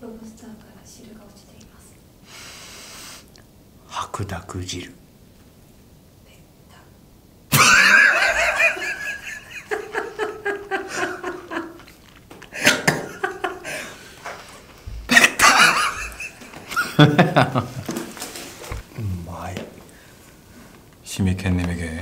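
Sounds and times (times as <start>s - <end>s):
men laughing: 7.5s - 18.8s.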